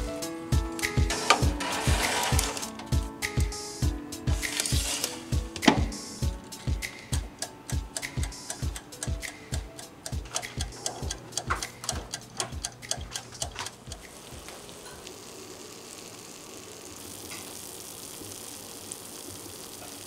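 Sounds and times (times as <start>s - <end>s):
background music with steady beat: 0.0s - 14.5s
faint steady hiss: 0.0s - 20.0s.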